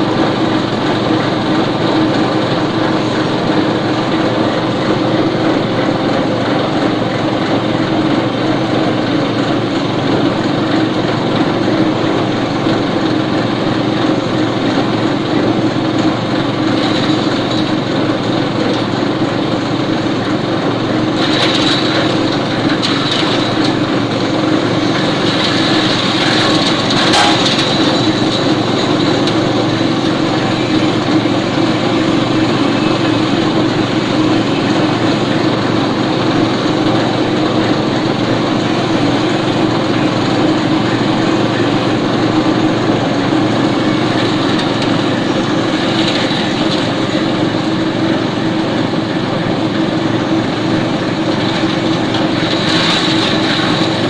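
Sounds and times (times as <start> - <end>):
compost shredder droning: 0.0 - 54.0
stems crackling and snapping: 21.2 - 30.5.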